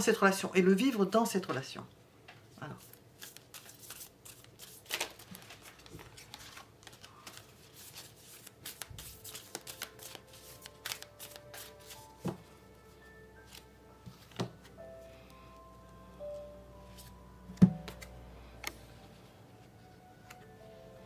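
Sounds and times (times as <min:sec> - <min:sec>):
cards being shuffled: 0:02.7 - 0:12.4, 0:13.5 - 0:14.6, 0:17.8 - 0:18.9
soft background music: 0:05.6 - 0:21.0.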